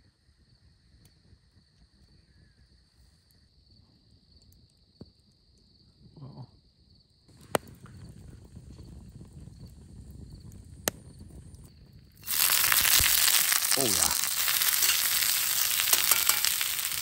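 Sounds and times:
campfire crackling and hissing: 7.3s - 17.0s.

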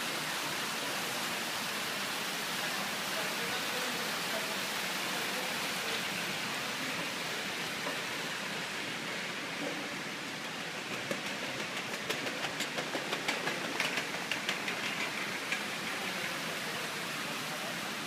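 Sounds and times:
room noise hiss: 0.0s - 18.0s
rapid sharp clicks: 10.9s - 16.2s.

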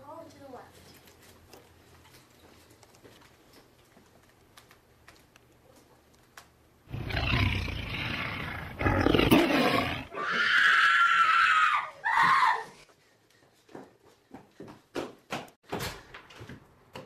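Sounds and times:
wild cat roaring: 6.9s - 10.4s
wild cat high cry: 6.9s - 12.7s.

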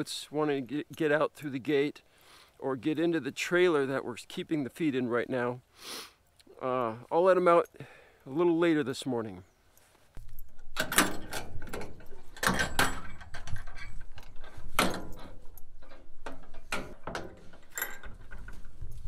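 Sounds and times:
metal latch unhooking: 10.4s - 18.6s
sheet-metal door knocks and rattles: 10.8s - 13.9s.

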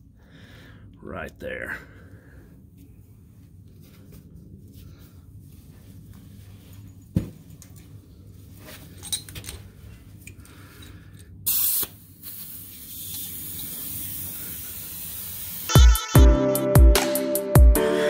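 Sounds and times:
compressed air hissing: 11.4s - 15.8s
loud blast of air: 11.5s - 15.8s.

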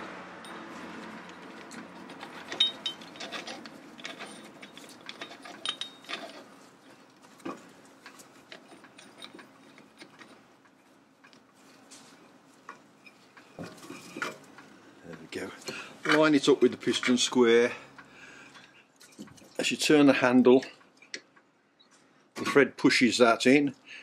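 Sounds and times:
metal tool clicks and clinks: 1.2s - 6.5s.

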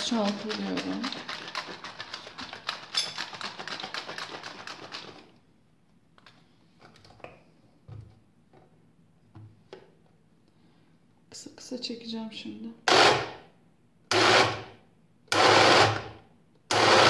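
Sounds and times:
plastic cup rattling when shaken: 0.0s - 5.4s.

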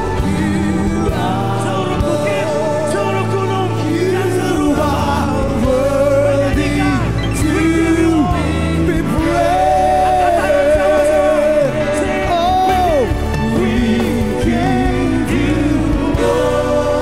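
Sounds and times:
keyboards: 0.0s - 17.0s
low bass line: 0.0s - 17.0s
worship band and singers: 0.0s - 17.0s.

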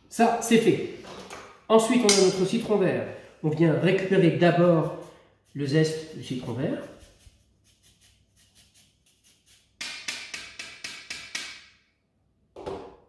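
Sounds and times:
zest grater scraping: 4.5s - 9.8s.

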